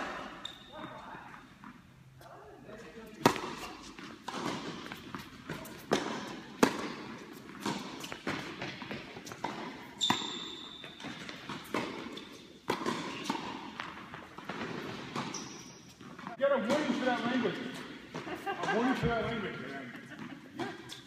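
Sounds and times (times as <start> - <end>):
racket striking tennis ball: 3.2 - 15.4
tennis ball bouncing: 3.2 - 19.2.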